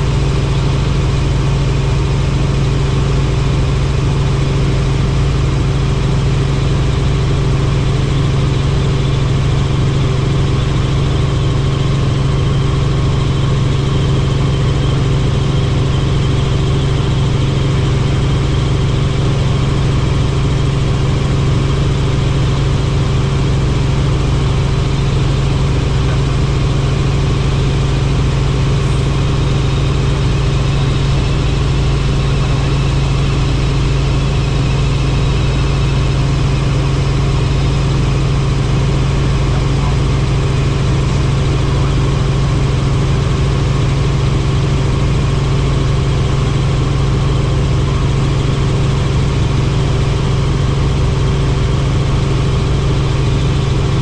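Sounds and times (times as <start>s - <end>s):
helicopter engine and rotors droning: 0.0s - 54.0s.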